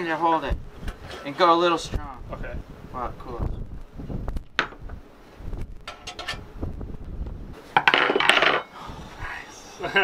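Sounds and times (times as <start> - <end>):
metal clatter and rattle: 5.9 - 6.4, 7.8 - 8.7.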